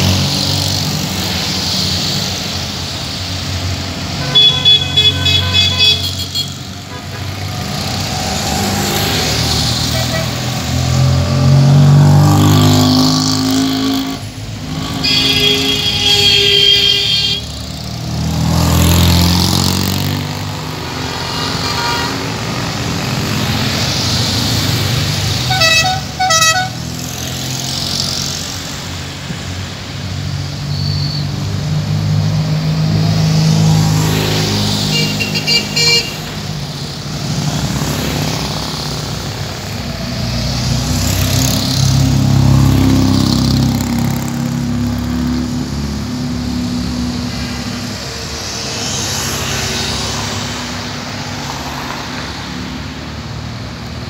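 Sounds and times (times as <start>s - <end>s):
car horn short toots: 4.2s - 6.5s
higher-pitched horn beeping: 4.2s - 7.3s, 14.8s - 17.5s, 25.4s - 26.8s, 34.9s - 36.3s.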